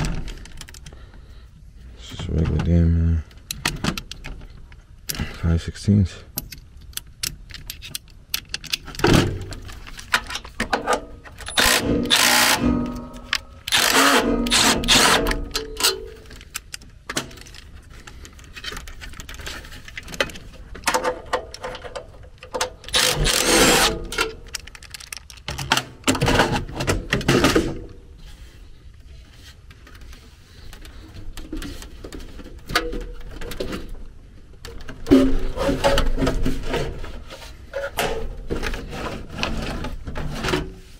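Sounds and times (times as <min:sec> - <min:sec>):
clatter of metal parts: 0:06.4 - 0:28.0
cordless drill driving screws: 0:11.5 - 0:12.7, 0:13.7 - 0:15.3, 0:22.9 - 0:24.0.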